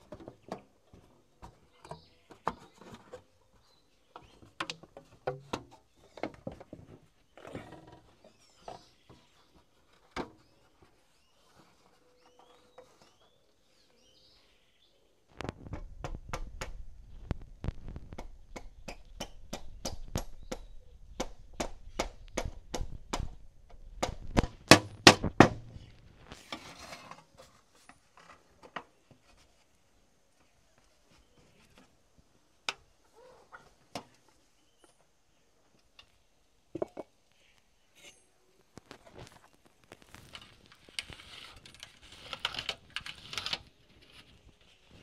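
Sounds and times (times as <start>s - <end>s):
faint bird chirps: 8.1s - 15.2s.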